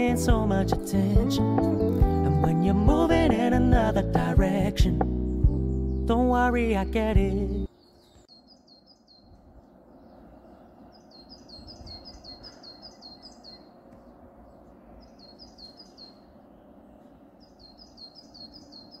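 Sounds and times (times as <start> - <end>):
songbird singing: 0.0 - 19.0
distant city hum: 7.7 - 19.0.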